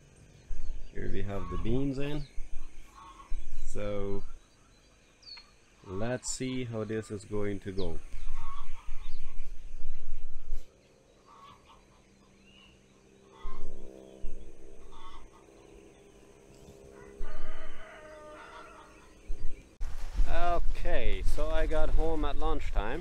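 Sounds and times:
rooster crowing: 16.9s - 19.2s.

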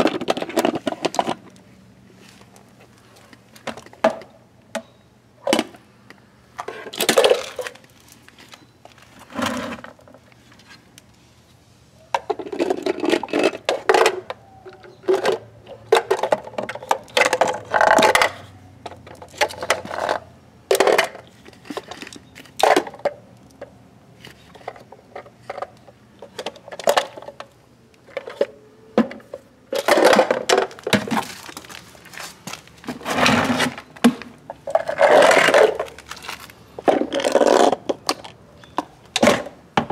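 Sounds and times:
plastic scraping on pavement: 0.0s - 4.3s, 6.5s - 39.9s
plastic bins knocking and clattering: 29.0s - 31.8s.

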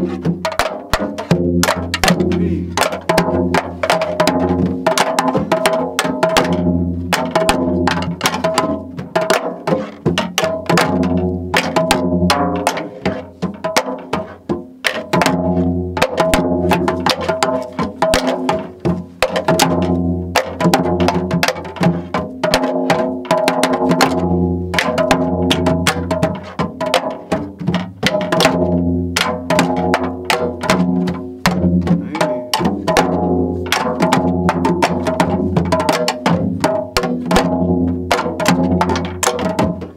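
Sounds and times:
deep drum booms: 14.4s - 39.9s.

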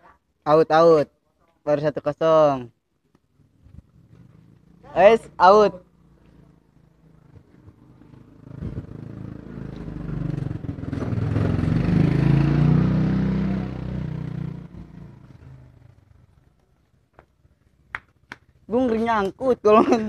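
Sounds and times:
motorcycle passing by: 3.4s - 16.6s.

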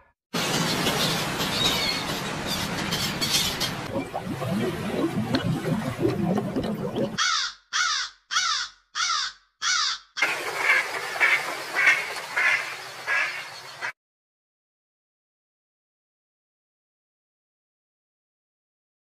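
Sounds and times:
duck quacking: 7.2s - 10.0s, 10.6s - 13.9s
crow cawing: 7.2s - 10.2s.

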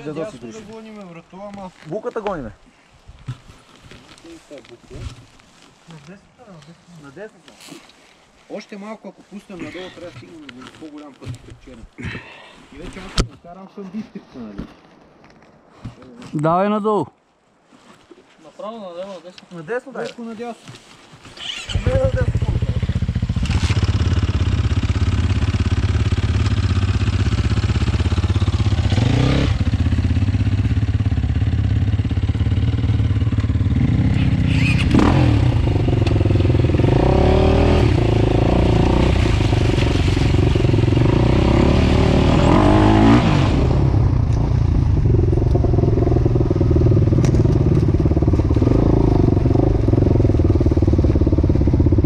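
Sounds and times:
dirt bike engine revving: 21.4s - 52.0s.

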